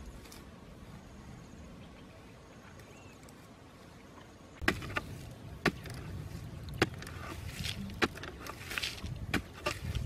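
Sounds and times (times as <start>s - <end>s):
faint outdoor background: 0.0s - 10.0s
stick striking hard ground: 4.6s - 10.0s.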